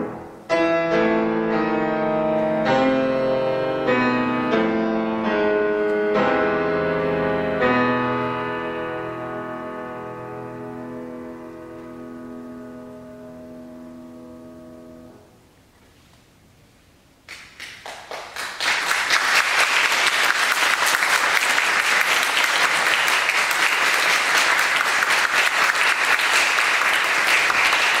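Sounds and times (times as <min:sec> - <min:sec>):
grand piano chord: 0:00.0 - 0:15.5
audience applause: 0:17.3 - 0:28.0.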